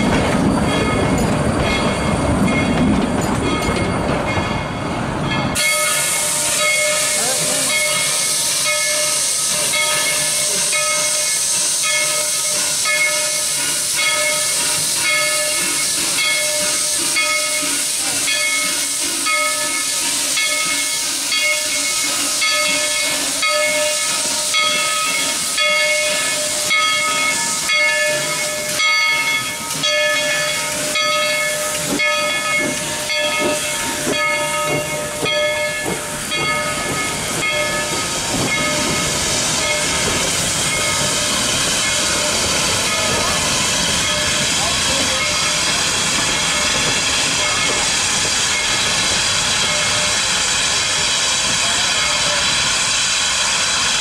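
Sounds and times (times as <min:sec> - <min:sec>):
steam locomotive hissing: 0:00.0 - 0:54.0.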